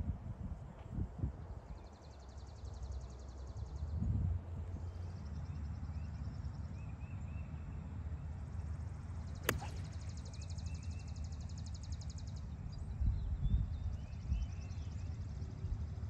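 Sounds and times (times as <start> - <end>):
golf club striking ball: 9.4 - 10.4.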